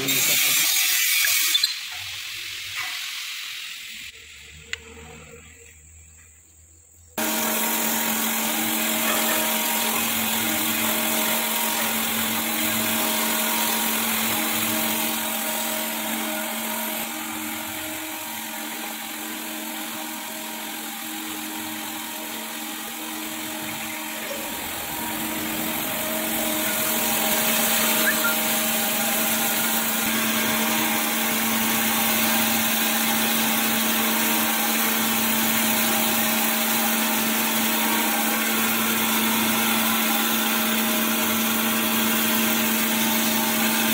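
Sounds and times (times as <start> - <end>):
grinder motor hum: 7.2 - 43.9
grinding wheel on metal: 7.2 - 43.9.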